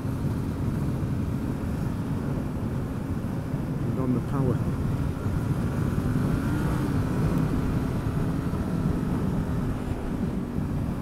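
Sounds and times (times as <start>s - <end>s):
wind on microphone: 0.0s - 11.0s
motorcycle engine accelerating: 5.0s - 11.0s.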